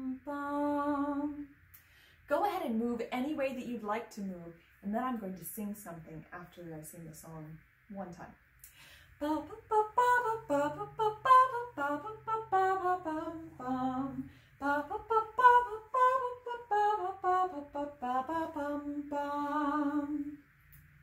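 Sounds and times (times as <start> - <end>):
woman singing wordless tune: 0.0 - 1.6, 9.2 - 20.4.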